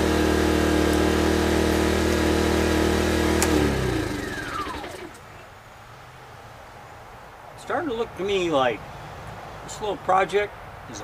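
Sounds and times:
generator humming: 0.0 - 5.3
machinery winding down whine: 0.8 - 5.2.

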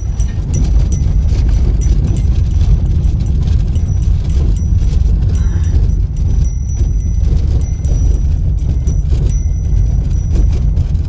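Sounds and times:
car interior road rumble: 0.0 - 11.0
small clicks and rattles: 0.0 - 11.0.

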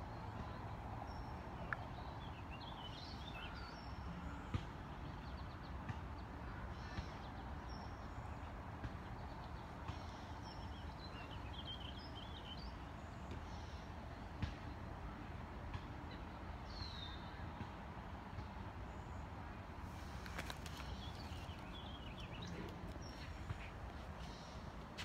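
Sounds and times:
small birds chirping: 19.9 - 25.0.

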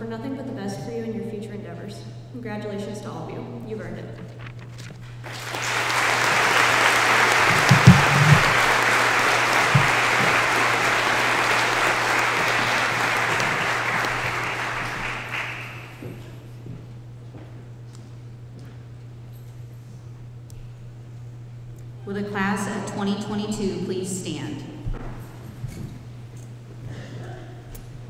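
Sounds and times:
steady low hum: 0.0 - 28.0
audience applause: 5.2 - 16.2.

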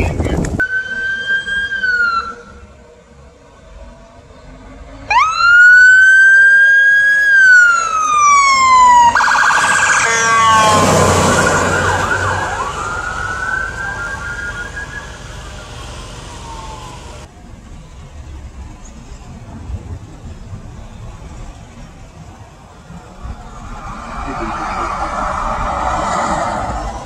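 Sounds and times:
emergency vehicle siren: 0.6 - 2.8, 5.0 - 17.3, 21.2 - 27.0
vehicle passing close by: 9.3 - 13.3, 22.9 - 27.0.

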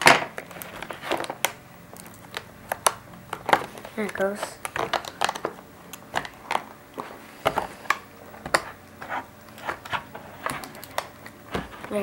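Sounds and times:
plastic packaging cracking: 0.0 - 6.7.

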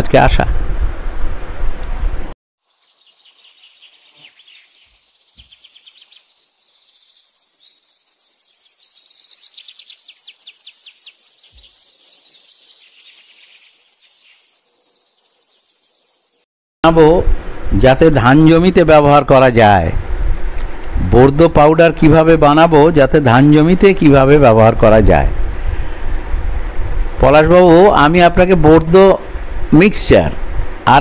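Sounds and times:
high-pitched chirps and trills: 2.6 - 16.4.

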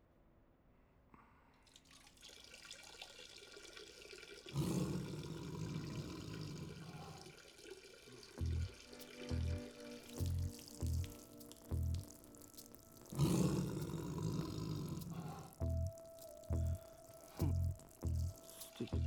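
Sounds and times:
urine stream splashing in toilet: 1.6 - 15.6.

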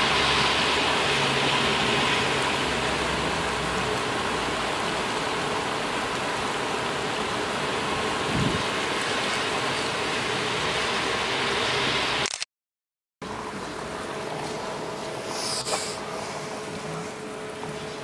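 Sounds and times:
heavy rain pouring: 0.0 - 12.2.

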